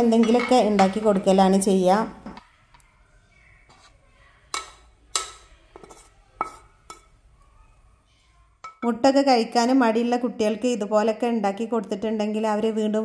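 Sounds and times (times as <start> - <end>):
spatula scraping a frying pan: 3.6 - 7.2.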